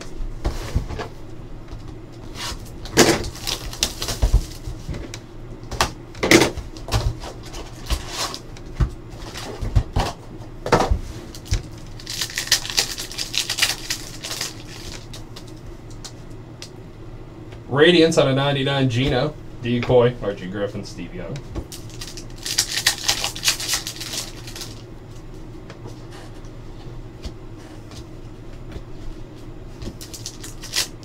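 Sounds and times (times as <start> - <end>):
foil packs crinkling: 2.6 - 4.7, 11.3 - 15.6, 21.7 - 24.9, 30.0 - 31.0.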